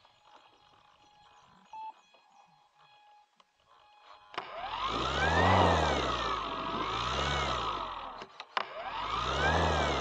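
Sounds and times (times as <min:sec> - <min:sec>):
faint electronic motor whine: 0:00.0 - 0:10.0
electric motor spinning up: 0:04.4 - 0:10.0.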